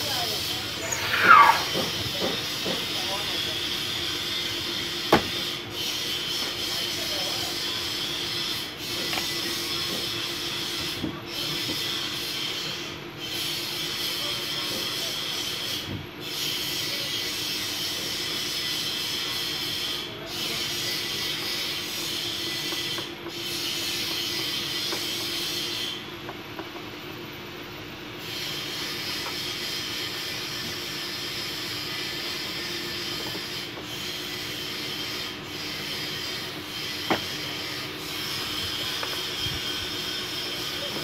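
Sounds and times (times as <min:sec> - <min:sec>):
constant mechanical hum: 0:00.0 - 0:41.0.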